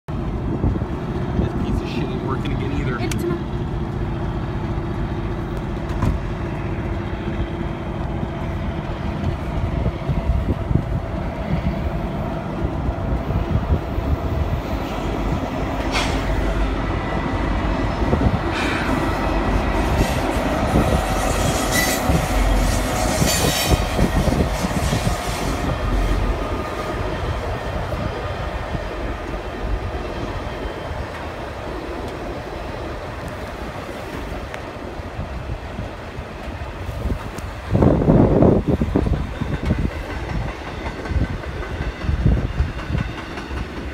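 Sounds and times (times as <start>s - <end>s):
train wheels clicking on rails: 0.1s - 34.9s, 35.8s - 43.9s
diesel locomotive rumbling: 0.1s - 43.9s
wheel screeches: 19.8s - 25.7s.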